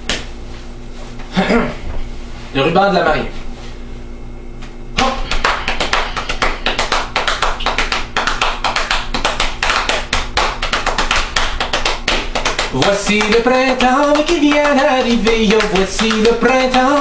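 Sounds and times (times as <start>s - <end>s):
sharp percussive taps: 5.0s - 17.0s.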